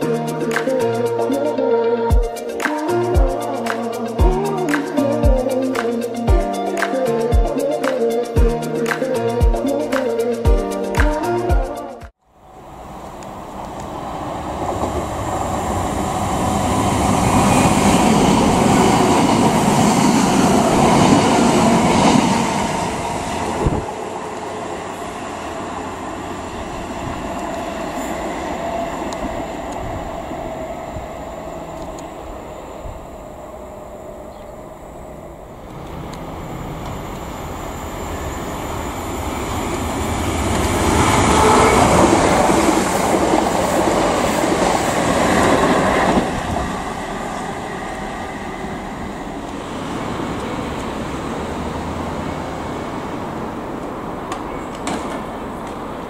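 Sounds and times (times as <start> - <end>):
electric trains passing: 0.0 - 56.0
train rumble: 12.4 - 56.0.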